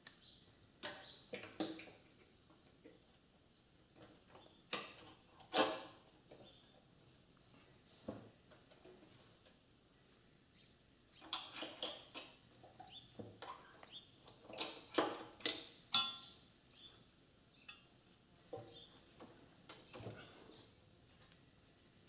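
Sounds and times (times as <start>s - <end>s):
metal parts clinking and knocking: 14.6s - 16.4s.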